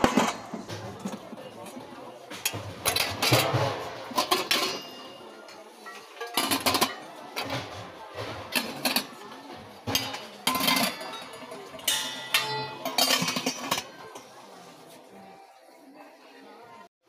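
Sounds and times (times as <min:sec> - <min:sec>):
steel kitchenware clinking: 0:00.0 - 0:14.4.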